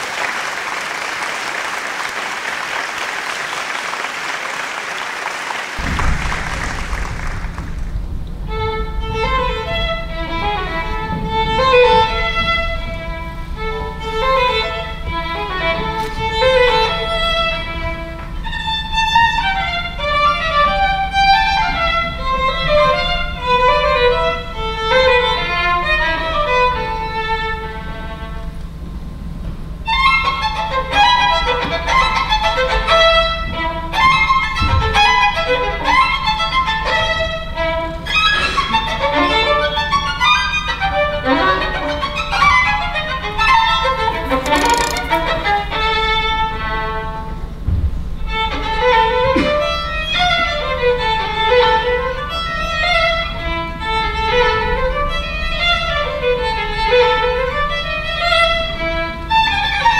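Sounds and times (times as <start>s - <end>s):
applause: 0.0s - 8.1s, 44.3s - 45.2s
steady low hum: 5.8s - 18.1s.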